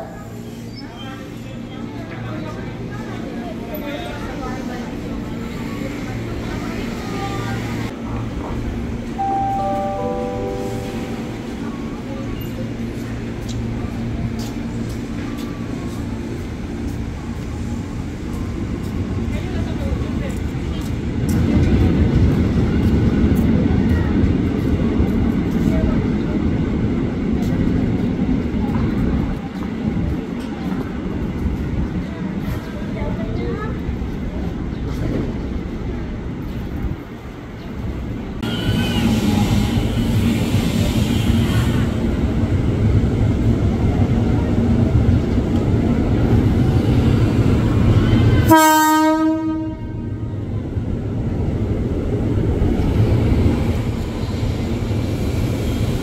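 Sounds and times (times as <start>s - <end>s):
train low hum: 0.0s - 56.0s
train rumble: 0.0s - 56.0s
train brake squeal: 38.4s - 42.0s.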